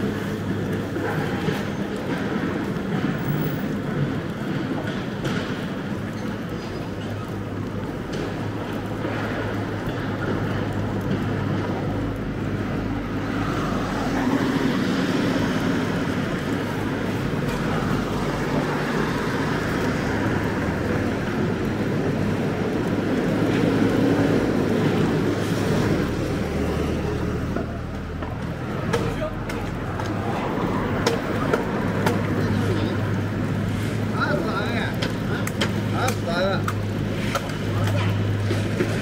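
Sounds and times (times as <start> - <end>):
cars and vans passing: 0.0 - 39.0.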